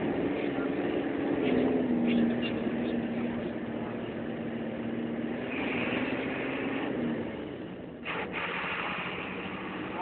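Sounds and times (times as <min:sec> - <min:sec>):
bus engine hum: 0:00.0 - 0:10.0
road noise hiss: 0:00.0 - 0:10.0.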